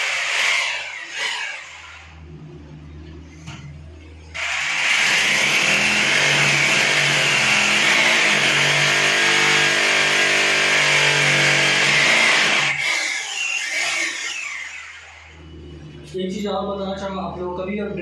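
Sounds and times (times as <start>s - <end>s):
electric drill boring into wall: 0.0s - 2.1s, 4.4s - 15.3s.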